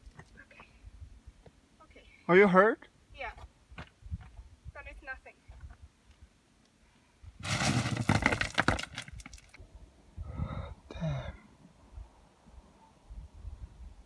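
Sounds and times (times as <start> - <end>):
gravel crunching underfoot: 7.4 - 9.6.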